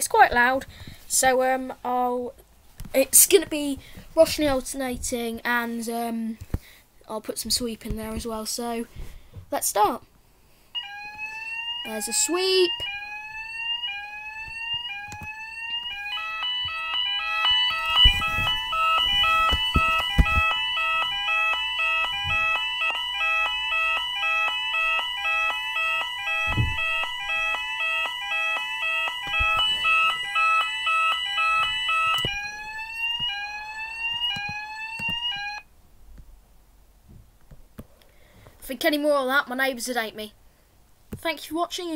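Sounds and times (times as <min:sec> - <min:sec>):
fire alarm rising sweep tone: 0:10.8 - 0:35.6
alternating two-tone alarm: 0:10.8 - 0:35.7.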